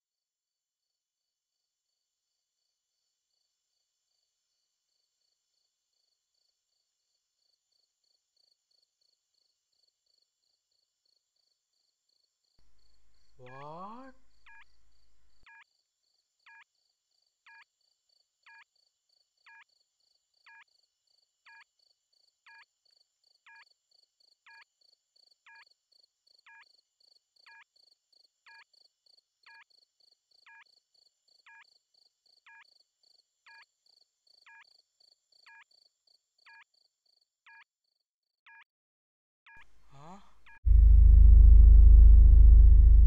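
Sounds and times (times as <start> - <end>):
steady high whine: 40.7 - 43.0.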